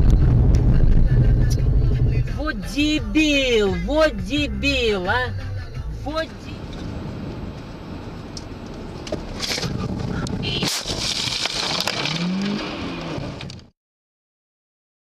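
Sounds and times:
car road and engine noise: 0:00.0 - 0:13.7
harsh crash noise: 0:09.3 - 0:12.5
car crash bang: 0:10.6 - 0:13.5.

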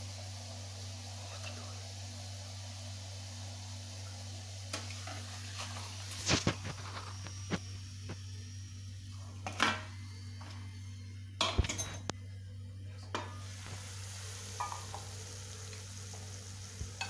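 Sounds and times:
hot oil sizzling: 0:00.0 - 0:12.4, 0:13.1 - 0:17.0
steady low hum: 0:00.0 - 0:17.0.

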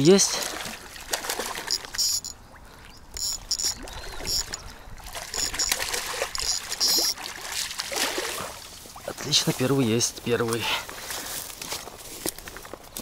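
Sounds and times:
water splashing: 0:00.0 - 0:09.9.

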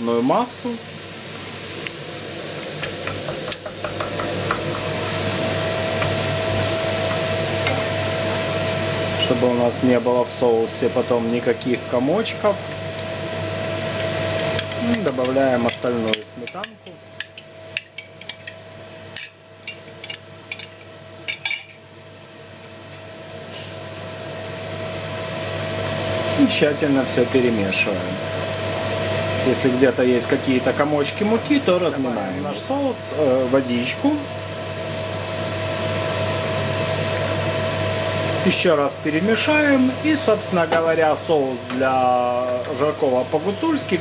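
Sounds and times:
steady background hiss: 0:00.0 - 0:21.8
steady hum: 0:00.0 - 0:44.0.

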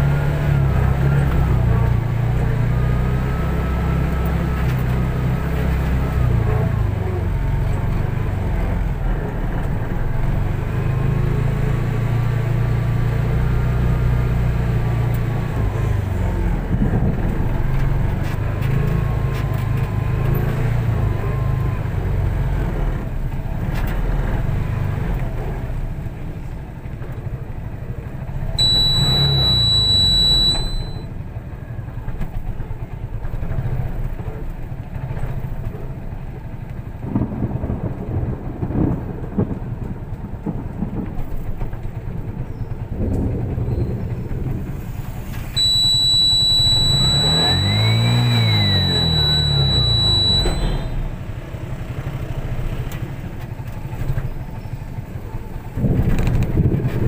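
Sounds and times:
car engine and road noise: 0:00.0 - 0:57.0
high-pitched beep: 0:28.6 - 0:31.1, 0:45.6 - 0:51.2.

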